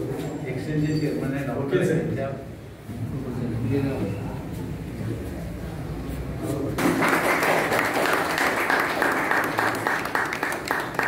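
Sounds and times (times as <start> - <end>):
low room murmur: 0.0 - 11.0
audience applause: 6.8 - 11.0.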